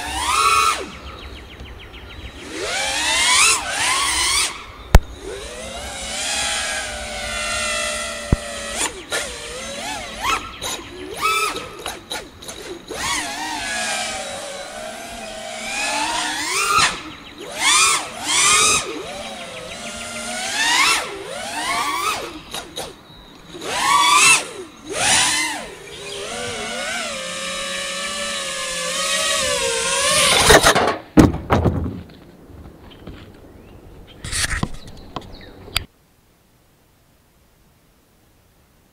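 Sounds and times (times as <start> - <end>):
drone motors whining: 0.0 - 30.8.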